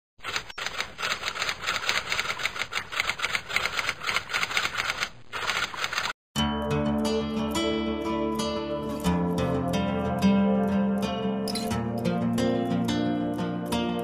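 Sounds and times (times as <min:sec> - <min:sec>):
typewriter keys clacking: 0:00.2 - 0:06.1
music: 0:06.4 - 0:14.0.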